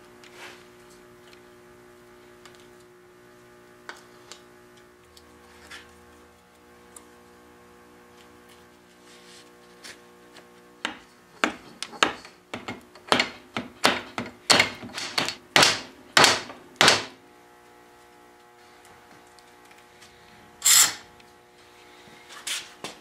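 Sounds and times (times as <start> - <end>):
sharp knocks of wood and tools: 10.8 - 17.2.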